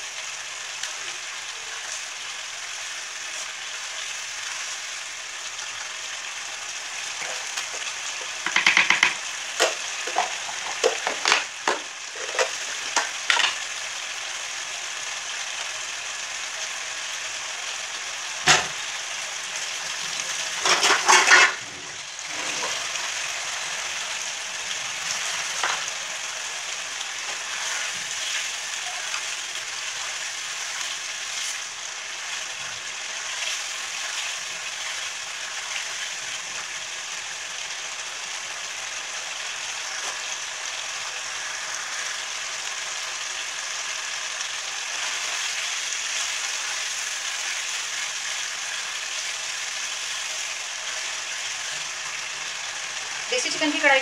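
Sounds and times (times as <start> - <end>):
meat sizzling in a pan: 0.0 - 54.0
spatula scraping a pan: 20.5 - 21.6.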